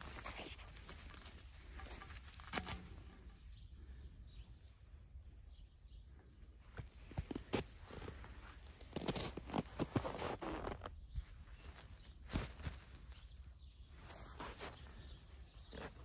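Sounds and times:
frozen fabric rustling: 7.3 - 10.9.

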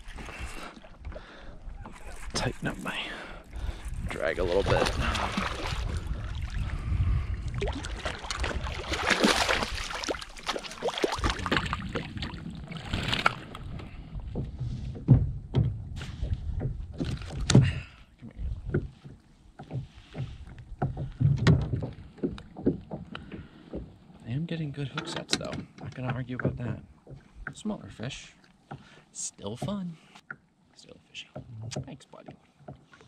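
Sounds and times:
knocks and bumps in kayak: 3.6 - 30.0, 31.2 - 33.0
fish splashing at water surface: 7.6 - 13.5.

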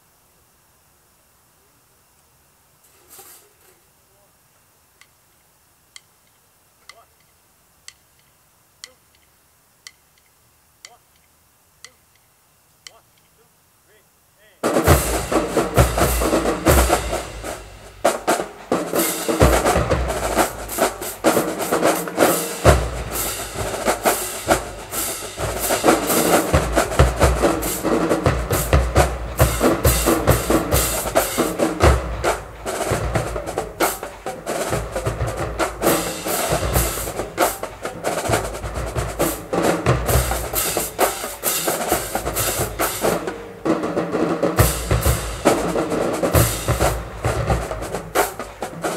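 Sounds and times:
snare drum rolls: 14.6 - 48.9.

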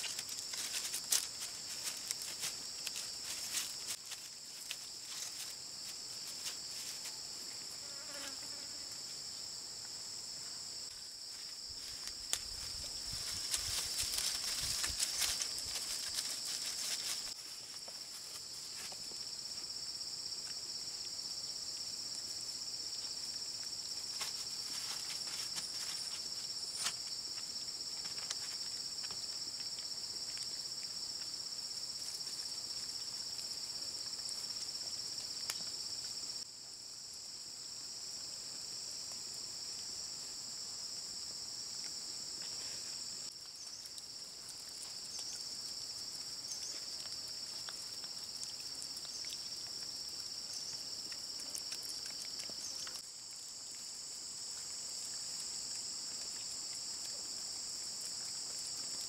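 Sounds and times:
light ticks and rustles: 0.0 - 7.2, 11.3 - 19.3, 22.9 - 36.2, 41.8 - 53.9
shrill insect chorus: 0.0 - 36.5.

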